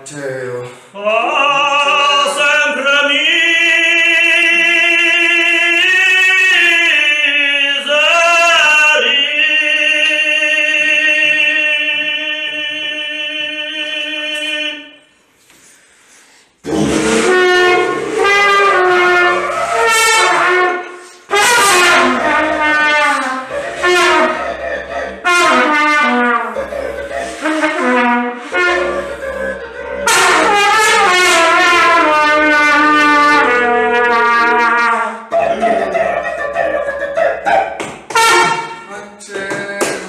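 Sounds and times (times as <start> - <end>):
low wind instrument: 16.6 - 38.8
trumpet playing a tune: 16.6 - 38.9.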